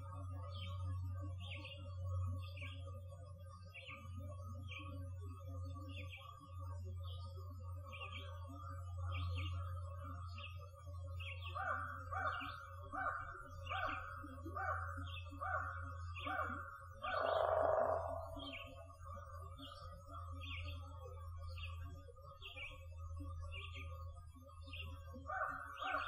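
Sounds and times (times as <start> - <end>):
low steady hum: 12.6 - 24.9
crows cawing: 13.0 - 13.9, 14.6 - 18.8
small bird high call: 15.4 - 18.9.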